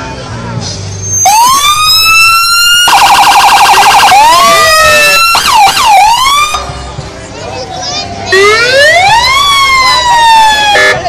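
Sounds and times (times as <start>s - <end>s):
electronic police siren wailing: 1.1s - 6.6s, 8.3s - 11.0s.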